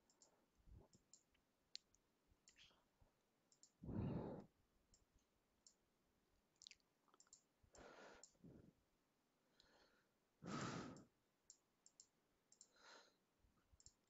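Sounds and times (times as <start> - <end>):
computer mouse clicks: 0.0 - 2.7, 3.5 - 3.8, 6.6 - 8.4, 10.9 - 12.8, 13.8 - 14.0
soft breaths: 3.8 - 4.6, 7.7 - 11.2, 12.6 - 13.3.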